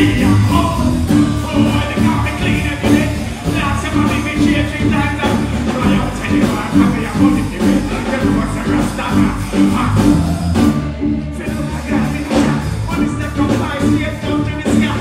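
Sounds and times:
live band playing: 0.0 - 15.0
man singing into a microphone: 0.0 - 15.0
repeating bass line: 0.0 - 15.0.

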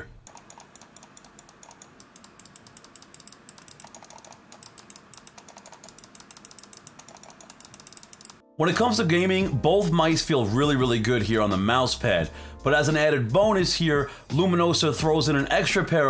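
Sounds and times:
mouse buttons clicking: 0.3 - 8.4.

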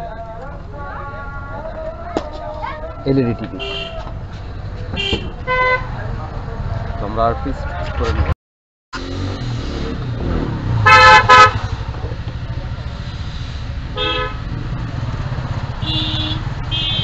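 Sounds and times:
low rumble of traffic: 0.0 - 8.3, 9.0 - 17.0
vehicle horns honking: 3.5 - 4.2, 4.9 - 6.0, 10.8 - 11.8, 13.9 - 14.5, 15.8 - 17.0.

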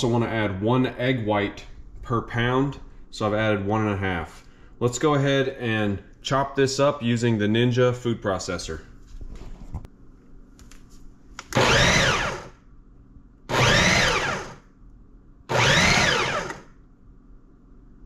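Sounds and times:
food processor motor whining: 11.5 - 12.5, 13.5 - 14.6, 15.5 - 16.7.

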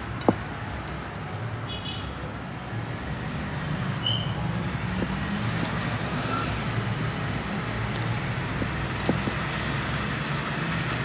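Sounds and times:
low rumbling background noise: 0.0 - 11.0
faint eating clicks: 4.5 - 9.4, 10.1 - 11.0.

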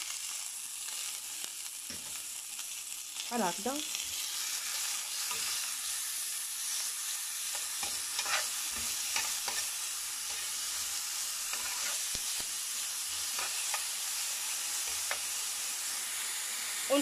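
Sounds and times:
onion sizzling in hot oil: 0.0 - 17.0
metal spoon scraping a pan: 4.0 - 6.1, 7.4 - 12.5, 13.1 - 14.1, 14.8 - 15.3.

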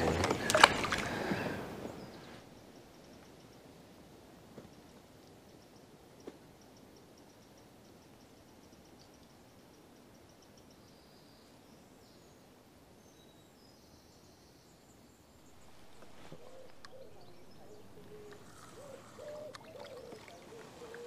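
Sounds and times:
small birds chirping: 4.6 - 21.0
bird cooing: 15.6 - 21.0.

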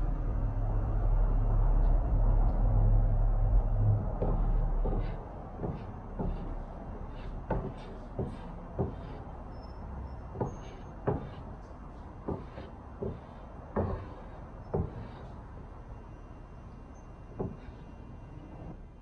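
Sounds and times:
low steady hum: 0.0 - 19.0
iron knocking and tapping on fabric: 4.2 - 9.3, 10.3 - 11.5, 12.2 - 15.3, 17.4 - 17.8.

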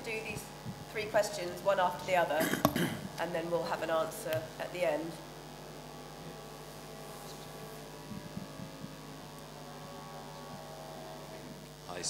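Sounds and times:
electrical mains hum: 0.0 - 12.0
faint low knocks: 8.0 - 9.0.

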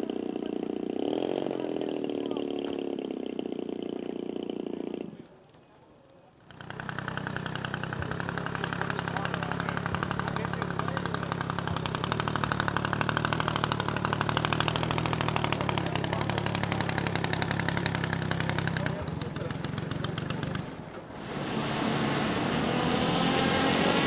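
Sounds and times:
model plane engine running: 6.6 - 24.0.

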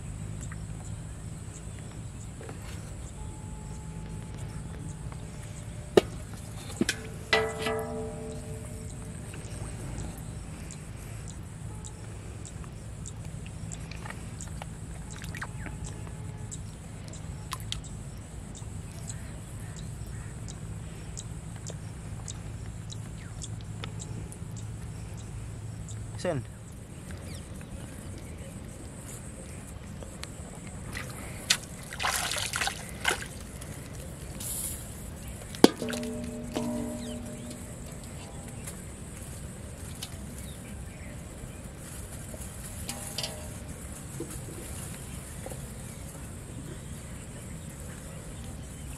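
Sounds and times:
steady low hum: 0.0 - 48.9
water splashing and trickling: 5.4 - 10.4, 13.8 - 15.9, 30.8 - 40.7, 42.3 - 45.2.

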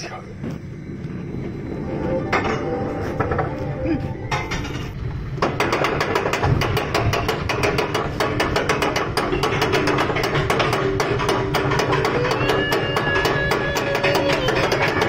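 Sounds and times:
roller coaster car rumbling: 0.0 - 15.0.

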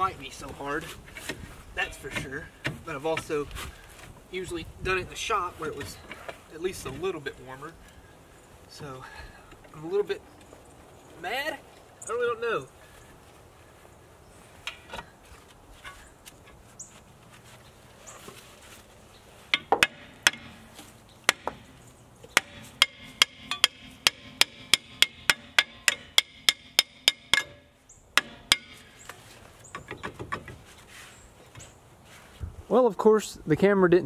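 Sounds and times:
hammer striking metal: 19.5 - 20.6, 21.3 - 21.7, 22.4 - 28.8.

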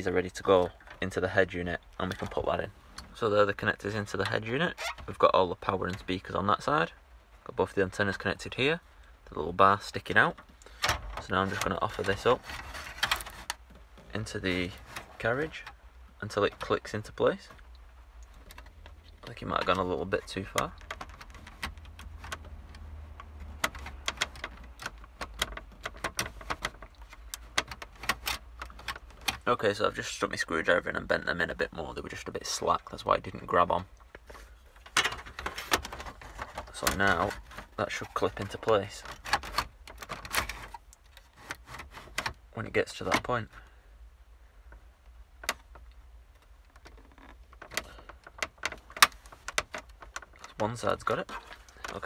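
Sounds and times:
car radio clicking in metal cage: 19.6 - 29.5.

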